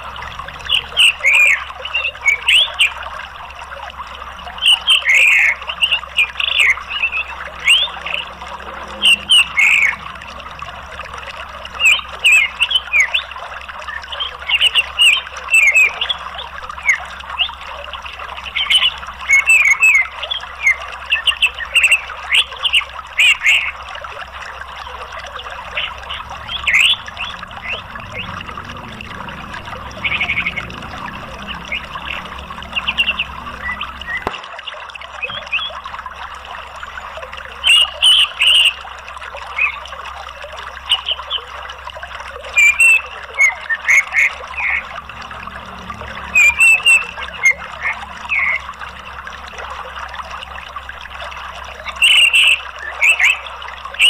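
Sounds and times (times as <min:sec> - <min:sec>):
bird chirping and twittering: 0:00.0 - 0:03.0, 0:04.6 - 0:16.2, 0:18.4 - 0:23.8, 0:24.8 - 0:34.3, 0:42.4 - 0:48.9, 0:51.7 - 0:54.0
running water: 0:00.0 - 0:54.0.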